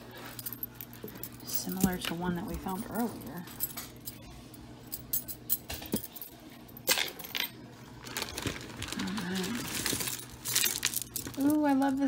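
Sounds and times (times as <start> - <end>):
metal jewelry clinking: 0.2 - 7.5, 10.0 - 12.0.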